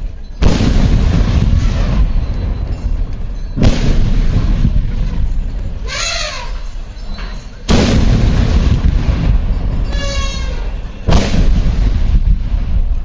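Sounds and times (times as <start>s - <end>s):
cannon booms with rumbling tail: 0.4s - 2.8s, 3.6s - 5.4s, 7.7s - 9.9s, 11.1s - 13.0s.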